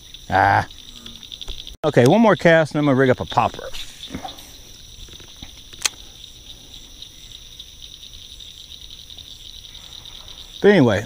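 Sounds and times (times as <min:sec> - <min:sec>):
insect chorus chirring: 0:00.0 - 0:11.0
sharp click: 0:05.1 - 0:06.0.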